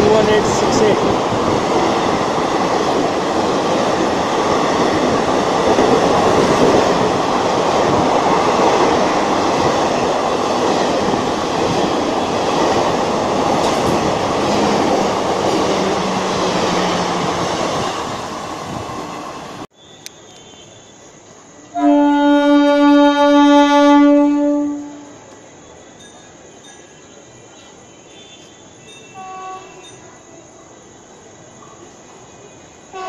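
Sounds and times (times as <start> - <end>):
train rushing past: 0.0 - 19.7.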